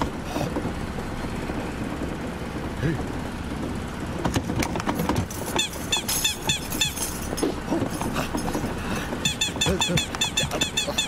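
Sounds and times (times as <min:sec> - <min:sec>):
cartoon squeaks: 0:05.6 - 0:07.0, 0:09.2 - 0:11.0.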